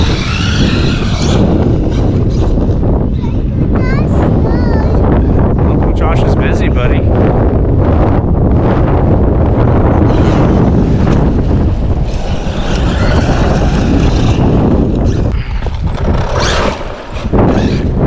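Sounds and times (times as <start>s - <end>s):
rc truck electric motor whine: 0.0s - 2.6s, 10.1s - 18.0s
wind buffeting microphone: 0.0s - 18.0s.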